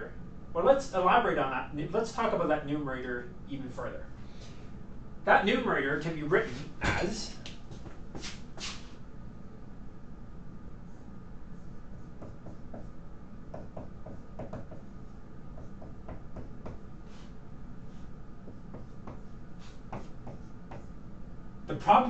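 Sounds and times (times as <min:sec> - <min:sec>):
low room hum: 0:00.0 - 0:22.0
marker squeaking on whiteboard: 0:11.6 - 0:12.9, 0:18.5 - 0:21.0.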